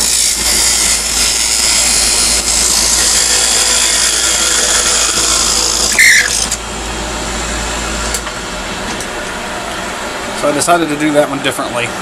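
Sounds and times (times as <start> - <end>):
lathe cutting hiss: 0.0 - 8.2
lathe motor hum: 0.0 - 12.0
loud screech: 2.9 - 6.6.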